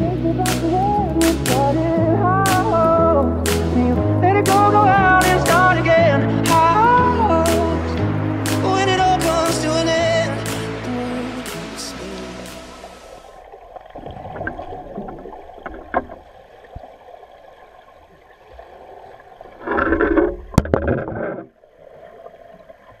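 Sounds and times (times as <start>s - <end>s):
background music: 0.0s - 13.3s
underwater water rush and gurgle: 0.0s - 23.0s
sharp click: 3.5s - 3.8s.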